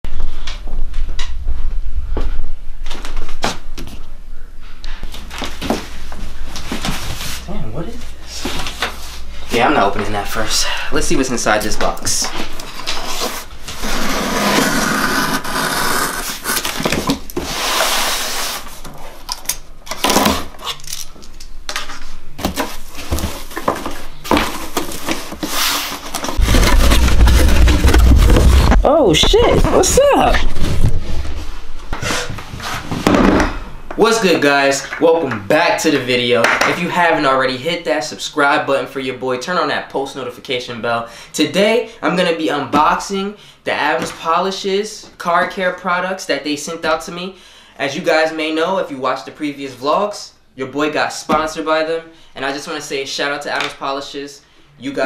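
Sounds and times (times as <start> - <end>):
cardboard scraping: 12.7 - 18.9, 22.4 - 33.1
packing tape tearing: 12.9 - 21.5, 24.3 - 28.9.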